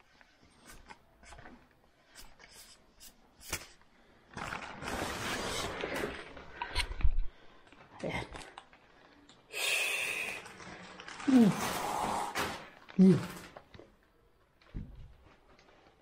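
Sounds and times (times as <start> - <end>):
foam and plastic film rustling: 4.0 - 6.6, 10.4 - 14.0, 14.6 - 16.0.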